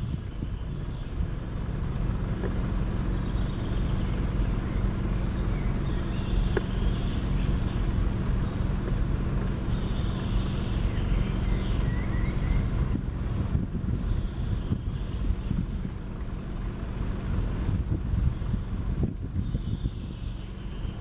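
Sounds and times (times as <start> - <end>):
wind buffeting microphone: 0.0 - 21.0
faint bird calls: 2.8 - 13.2, 13.8 - 15.9.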